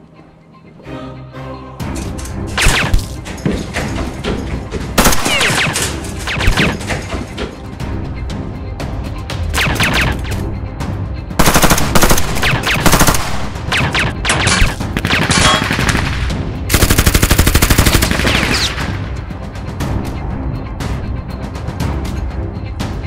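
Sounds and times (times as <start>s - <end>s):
film music score: 0.0s - 23.0s
automatic gunfire: 5.0s - 6.8s, 11.4s - 18.8s.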